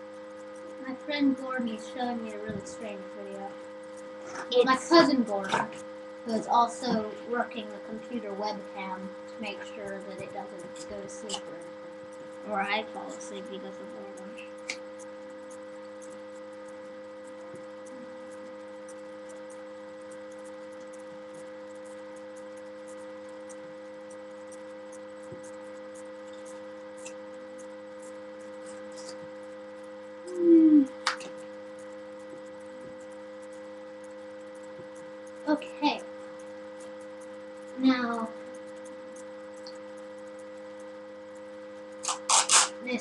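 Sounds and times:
electrical hum: 0:00.0 - 0:43.0
sharp click: 0:31.0 - 0:31.4.

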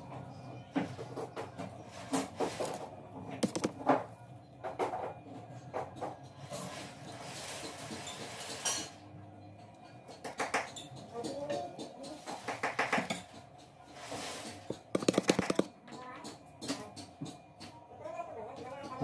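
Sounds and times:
rapid sharp clicks: 0:03.4 - 0:03.8, 0:15.0 - 0:15.7.

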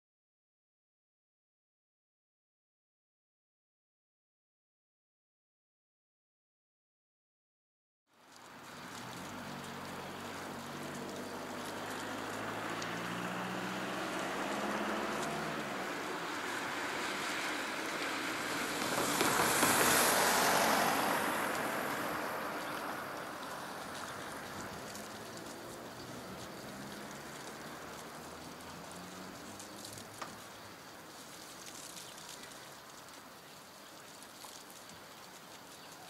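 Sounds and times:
windy hiss: 0:08.1 - 0:36.0
car engine hum: 0:08.7 - 0:30.7.

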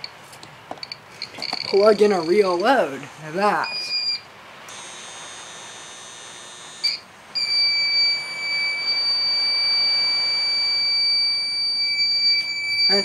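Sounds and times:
faint high electronic whine: 0:00.0 - 0:13.0
alarm beeper beeping: 0:03.6 - 0:13.0.

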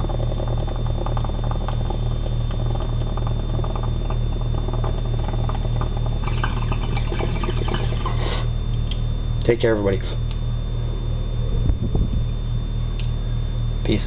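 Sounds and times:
water bubbling in a bong: 0:00.0 - 0:08.6
electrical hum with high whine: 0:00.0 - 0:14.0.

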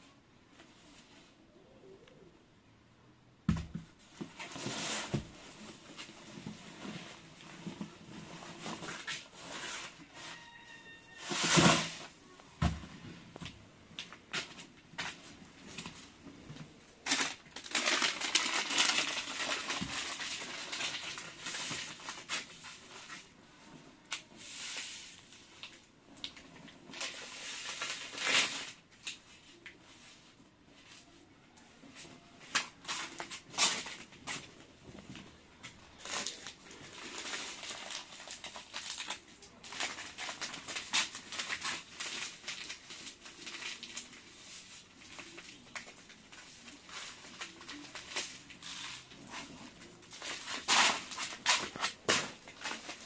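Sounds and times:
plastic packet crinkling: 0:17.0 - 0:22.6, 0:35.9 - 0:53.0.

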